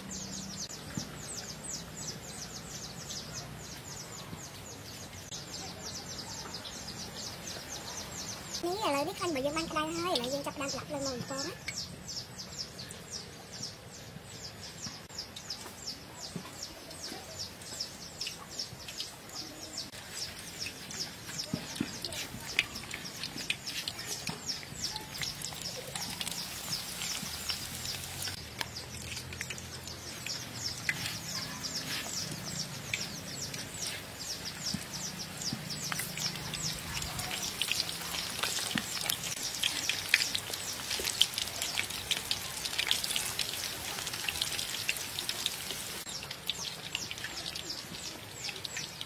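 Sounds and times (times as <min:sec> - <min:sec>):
hot oil sizzling in a wok: 0:20.1 - 0:29.3, 0:30.2 - 0:49.0.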